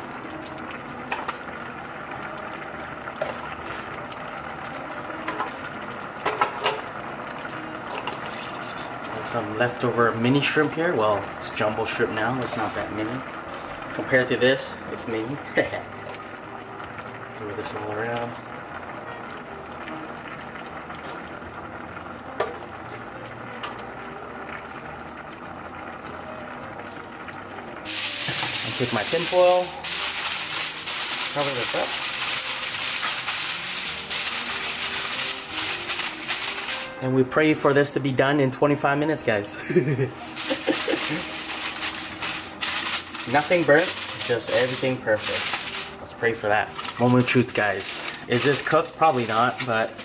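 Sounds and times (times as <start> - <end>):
broth simmering with hiss: 0.0 - 38.0, 39.7 - 50.0.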